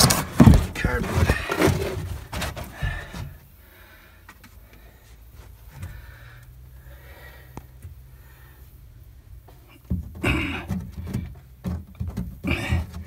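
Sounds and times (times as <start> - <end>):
hands rustling car trunk carpet: 0.0 - 3.6.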